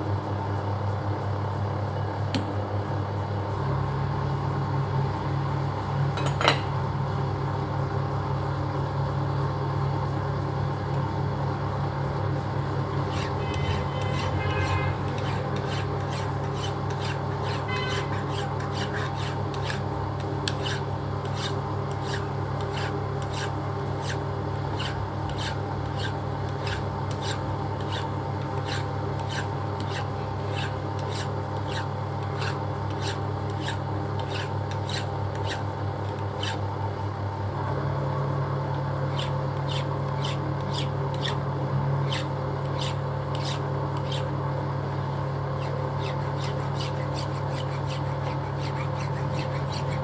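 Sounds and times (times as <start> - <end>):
polishing bar clicking: 13.0 - 19.8, 20.4 - 24.2, 24.8 - 35.6, 39.1 - 41.4, 42.0 - 44.3, 45.6 - 50.0.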